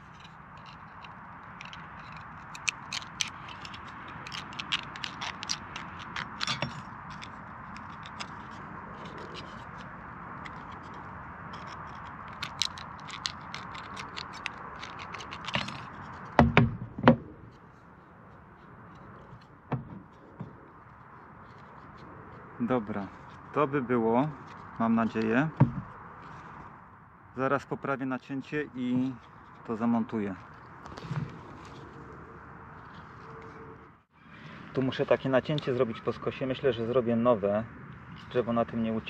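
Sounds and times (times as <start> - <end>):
knocks on wooden board: 16.4 - 17.2.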